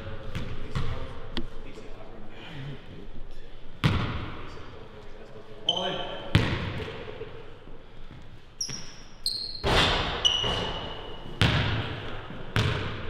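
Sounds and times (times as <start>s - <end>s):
basketball bouncing on wood floor: 3.8s - 4.2s, 9.6s - 13.0s
sneaker squeaks: 5.6s - 6.5s, 8.6s - 11.4s.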